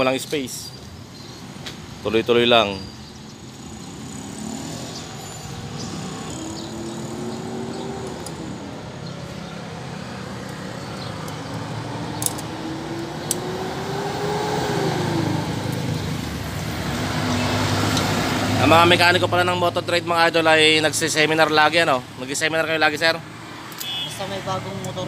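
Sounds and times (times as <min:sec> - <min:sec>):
road traffic hum: 0:00.0 - 0:25.0
vehicles passing: 0:00.0 - 0:25.0.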